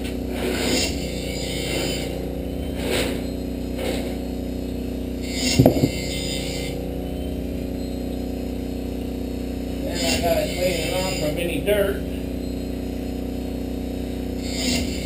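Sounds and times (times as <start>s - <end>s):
blade sharpener humming: 5.2s - 6.8s
sharp knock: 5.6s - 6.0s.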